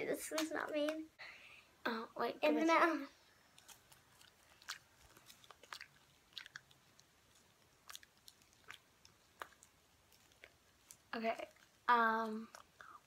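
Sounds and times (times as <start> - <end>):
gum chewing mouth clicks: 3.5 - 13.0.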